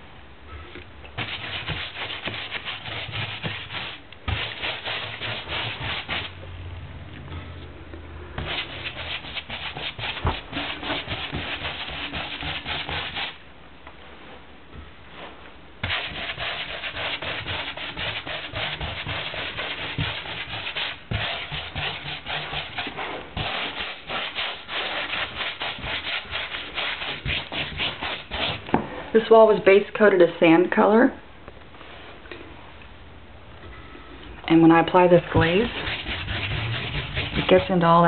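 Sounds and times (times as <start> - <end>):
scratchy scrubbing on rough wall: 1.2 - 6.4, 8.4 - 13.4, 15.8 - 28.7, 35.2 - 37.9.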